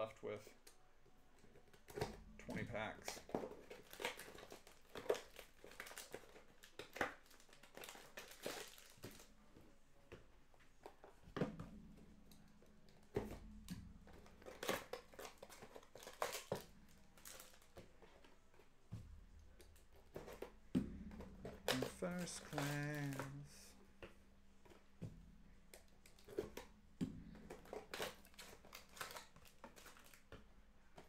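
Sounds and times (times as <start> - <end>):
wrapper crinkling: 3.0 - 9.4, 14.4 - 17.9, 21.5 - 23.7, 27.4 - 30.3.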